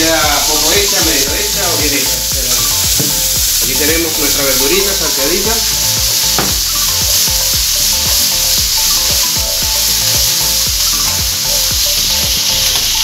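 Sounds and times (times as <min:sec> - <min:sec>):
vegetables sizzling in frying pan: 0:00.0 - 0:13.0.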